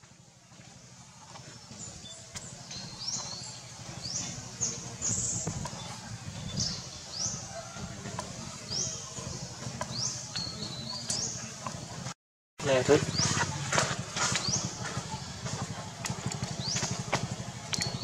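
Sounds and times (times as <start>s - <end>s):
bird chirping: 1.3s - 12.0s.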